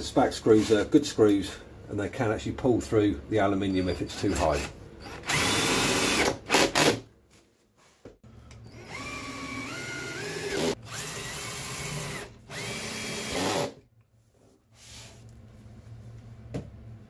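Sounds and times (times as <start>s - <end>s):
drill driving screws: 5.0s - 7.0s, 8.7s - 13.8s.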